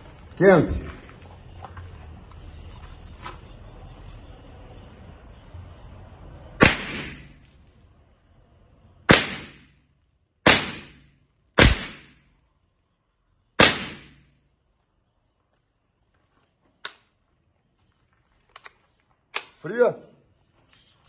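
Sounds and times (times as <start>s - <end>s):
rifle shots: 6.6s - 7.4s, 9.1s - 9.8s, 10.4s - 12.2s, 13.6s - 14.3s.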